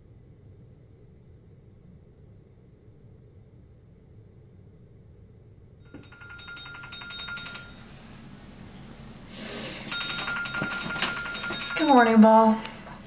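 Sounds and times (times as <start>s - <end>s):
alarm clock beeping: 5.9s - 8.0s, 9.8s - 12.9s.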